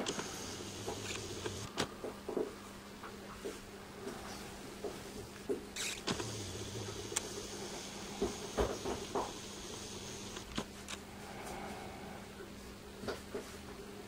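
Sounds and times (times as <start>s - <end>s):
camcorder zoom motor: 0.0s - 1.7s, 5.8s - 10.7s.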